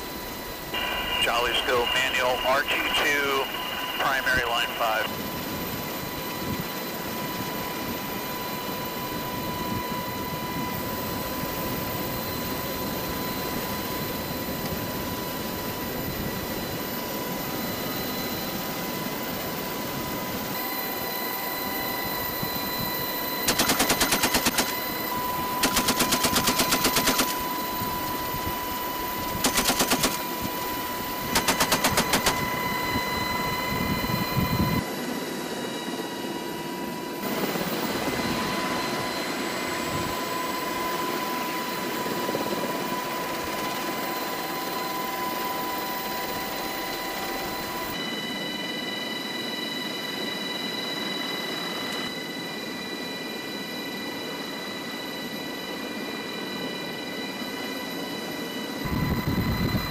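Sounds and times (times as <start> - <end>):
helicopter whine and rumble: 0.0 - 59.9
machine gun bursts: 23.5 - 24.8, 25.6 - 27.4, 29.4 - 30.2, 31.3 - 32.4.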